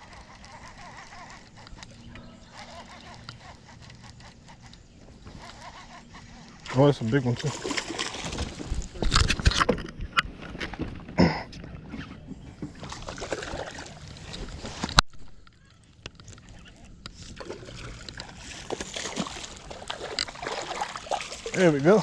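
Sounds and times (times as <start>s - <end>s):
water splashing beside a boat: 6.7s - 9.4s, 12.6s - 14.9s, 16.2s - 22.0s.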